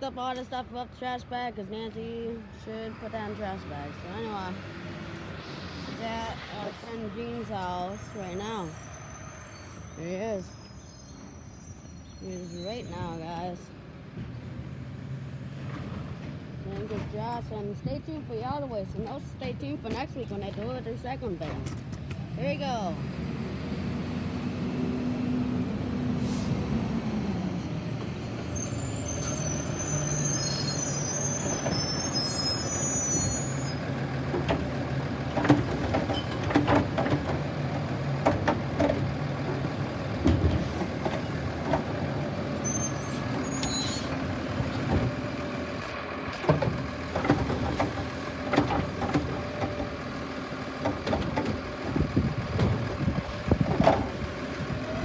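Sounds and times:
air brake hiss: 5.4 - 6.0
trash cart clanking and banging: 15.6 - 18.0, 33.2 - 55.0
garbage truck engine running: 32.7 - 55.0.

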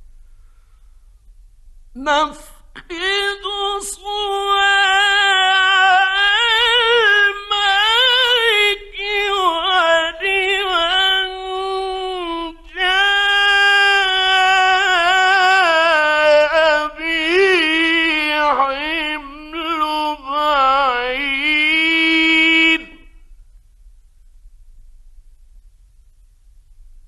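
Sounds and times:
man reciting in ornamented voice: 2.0 - 23.4.

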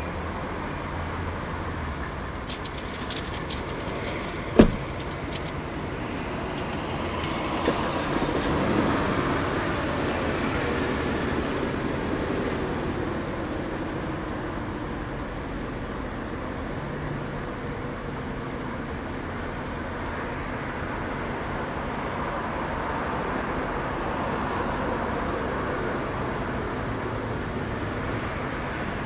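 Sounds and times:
car door shutting: 4.5 - 5.1.

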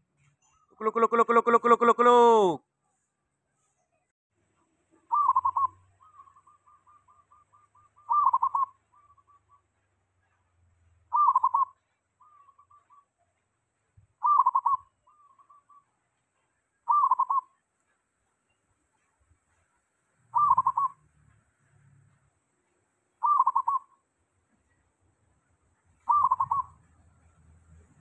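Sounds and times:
rippling bird notes: 5.1 - 9.6, 11.1 - 13.0, 20.3 - 21.0, 26.1 - 26.8
dove cooing: 5.1 - 9.7, 11.1 - 13.1, 14.2 - 15.8, 16.9 - 17.5, 20.3 - 21.0, 23.2 - 23.9, 26.0 - 26.8.

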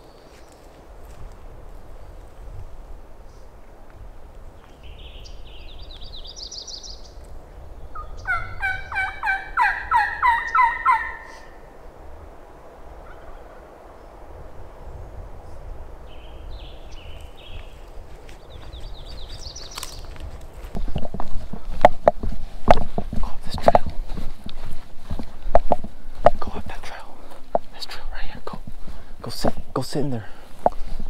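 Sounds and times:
songbird singing: 0.0 - 31.0
turkey calling: 7.9 - 11.7, 13.0 - 13.6.

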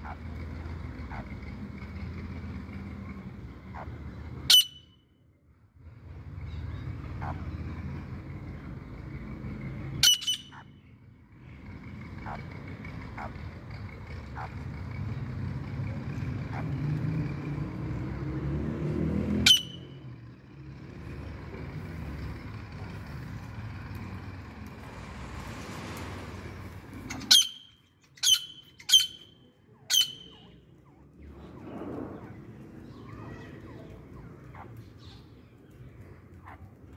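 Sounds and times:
bird giving shrill calls: 4.5 - 4.9, 10.0 - 10.7, 19.4 - 19.9, 27.1 - 30.6.

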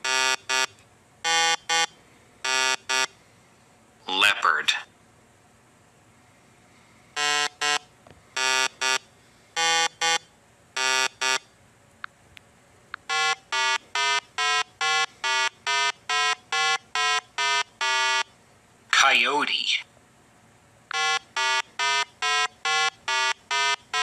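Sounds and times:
electronic video game beeps: 13.1 - 18.2, 20.9 - 24.0.

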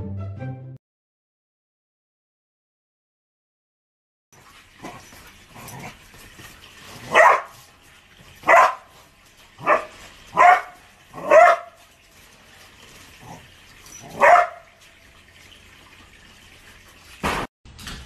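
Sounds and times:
dog barking: 7.0 - 7.6, 8.4 - 8.9, 9.6 - 11.8, 14.0 - 14.8.

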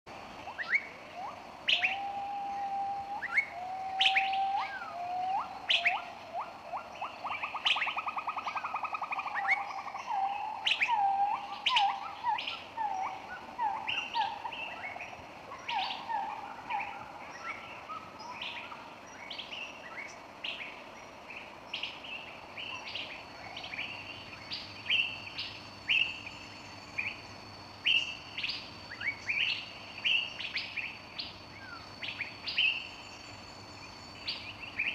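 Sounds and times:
birds chirping: 0.2 - 34.9
whistled bird song with trill: 0.5 - 20.7, 27.8 - 34.9.

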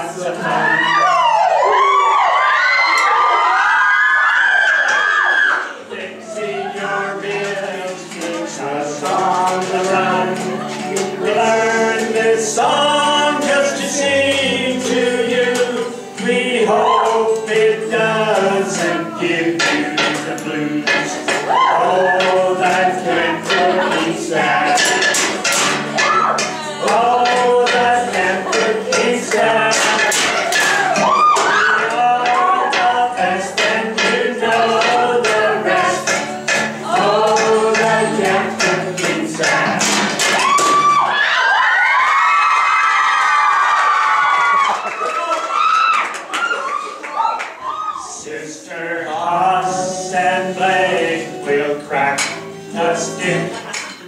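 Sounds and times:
man singing: 0.0 - 1.1, 5.8 - 25.8, 26.4 - 40.5, 48.1 - 53.8
group singing: 0.0 - 1.9, 5.4 - 41.2, 48.0 - 54.0
strummed acoustic guitar: 5.8 - 41.0, 48.7 - 54.0
kitchen utensils knocking the beat: 6.1 - 41.0, 49.2 - 54.0.

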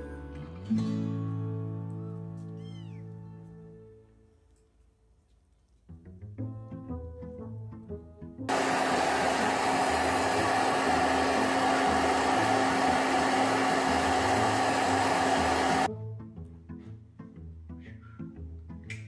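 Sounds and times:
light background music: 0.0 - 8.5, 15.2 - 19.0
blow dryer running: 8.5 - 15.9.

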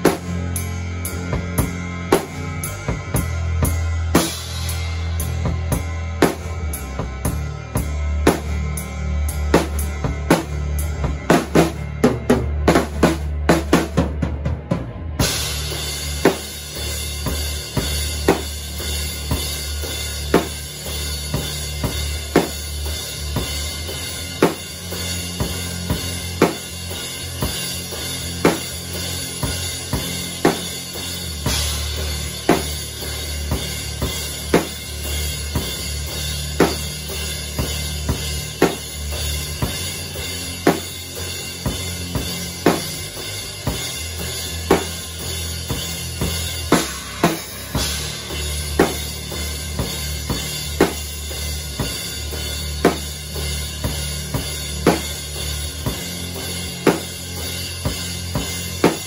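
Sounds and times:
slow heavy drum beat: 0.0 - 59.0
cymbals washing: 15.2 - 59.0.

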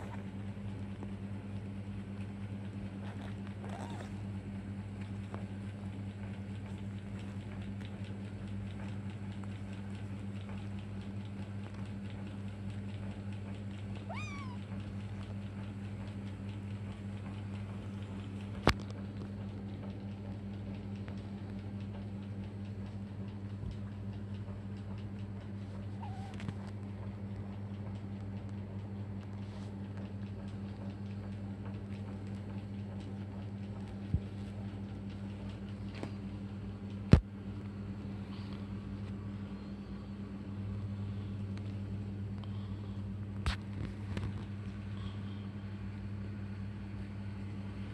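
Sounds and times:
steady low hum: 0.0 - 47.9
high kitten meow: 14.0 - 14.8, 26.0 - 26.4.

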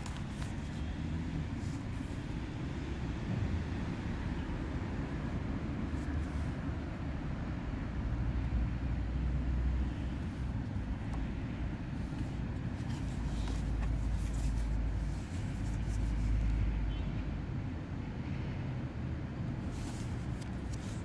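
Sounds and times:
faint rustles: 0.0 - 2.4, 10.0 - 16.6, 19.6 - 21.0
low outdoor rumble: 5.0 - 16.8.

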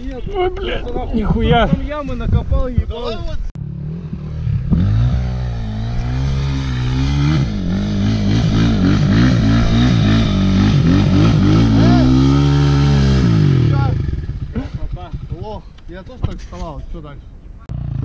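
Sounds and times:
dirt bike engine revving: 3.6 - 15.4, 17.7 - 18.0.

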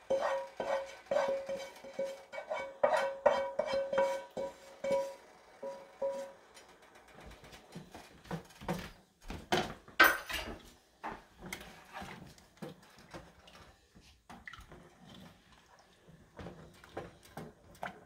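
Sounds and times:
utensils knocking on pot: 0.0 - 6.4
spoon stirring thick beans: 0.0 - 6.5.

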